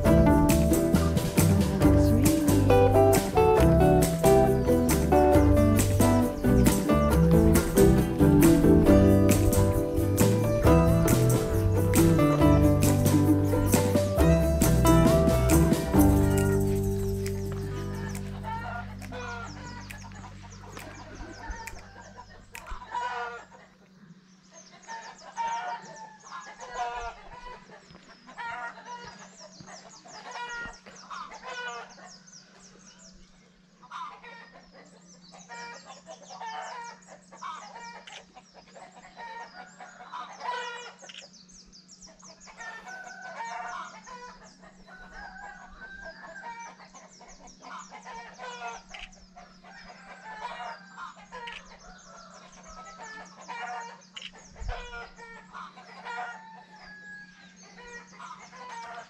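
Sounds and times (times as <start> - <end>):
steady low hum: 0.0 - 28.4
chickens clucking and crowing: 0.0 - 59.0.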